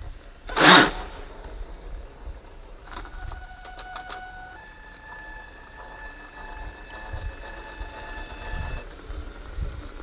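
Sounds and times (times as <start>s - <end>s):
loud rushing burst: 0.4s - 2.5s
electric motor whine: 2.6s - 10.0s.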